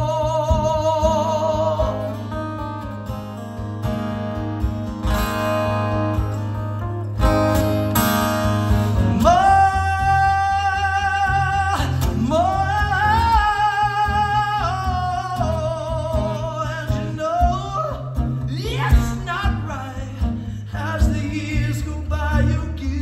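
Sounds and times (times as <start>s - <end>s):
acoustic guitar strumming: 0.0s - 23.0s.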